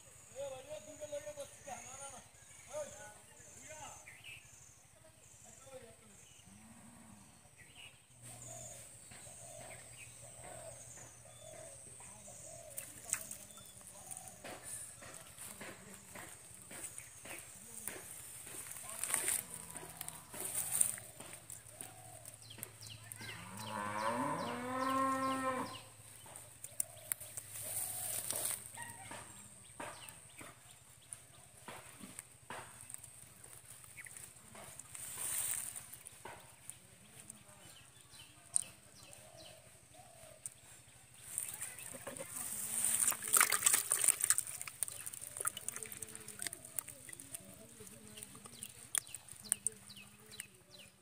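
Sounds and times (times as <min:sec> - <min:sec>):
water splashing in bucket: 0:12.7 - 0:14.4, 0:41.4 - 0:49.9
cow mooing: 0:23.2 - 0:25.9.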